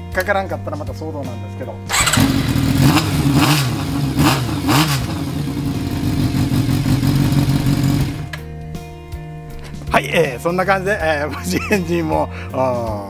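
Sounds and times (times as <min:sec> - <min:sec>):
motorcycle engine revving and idling: 0:01.9 - 0:08.4.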